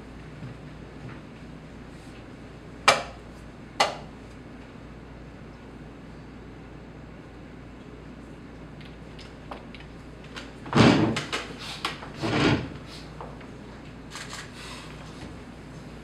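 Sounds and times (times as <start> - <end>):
heavy thuds: 10.8 - 11.2.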